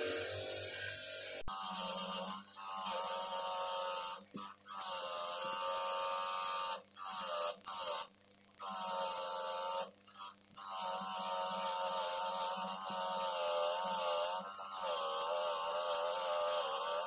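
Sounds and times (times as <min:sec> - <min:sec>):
wire wheel grinder buzzing: 0:00.0 - 0:17.0.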